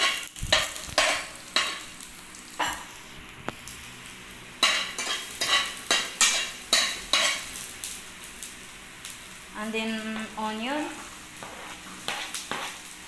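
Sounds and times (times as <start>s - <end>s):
garlic sizzling in oil: 0.0s - 13.0s
metal spoon scraping frying pan: 4.6s - 7.4s, 11.4s - 12.8s.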